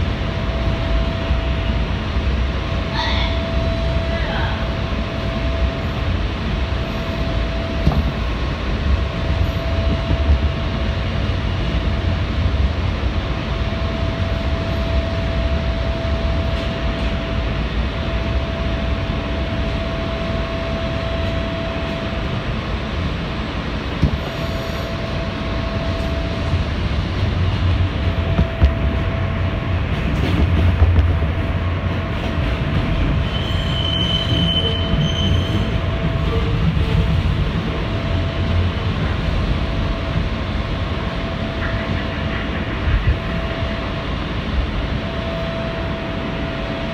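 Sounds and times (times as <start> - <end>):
train wheels rumbling on rail: 0.0 - 46.9
train motor tone: 13.1 - 46.9
wheel squeal: 33.2 - 35.7.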